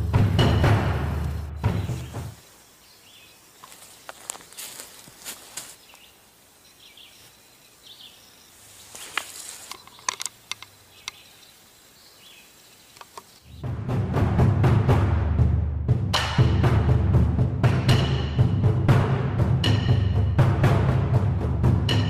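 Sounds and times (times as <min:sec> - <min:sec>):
sharp clicks: 0:09.7 - 0:11.2, 0:12.9 - 0:13.4.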